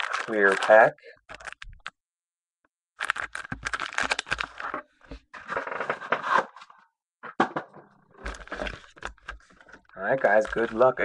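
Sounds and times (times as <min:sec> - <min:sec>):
plastic wrapper crinkling and tearing: 0:00.0 - 0:02.0, 0:03.0 - 0:05.0, 0:08.2 - 0:11.0.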